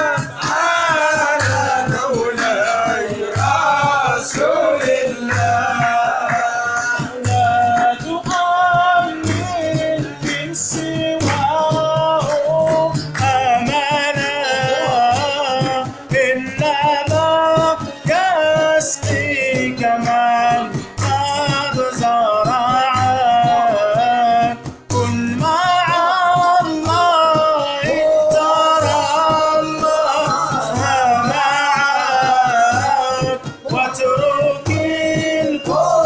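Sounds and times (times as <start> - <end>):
jingling frame drum: 0.0 - 36.0
men singing a chant: 0.0 - 36.0
oud: 0.0 - 36.0.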